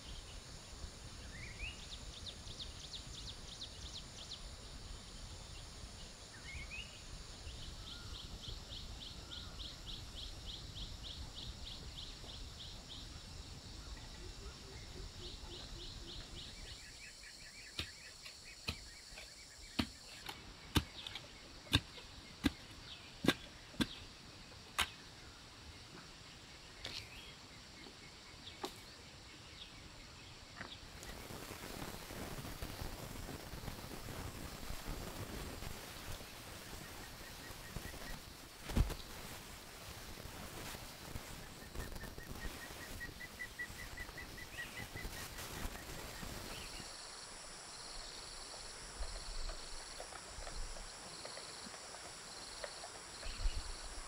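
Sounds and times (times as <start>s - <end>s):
birds chirping: 40.6s - 47.0s.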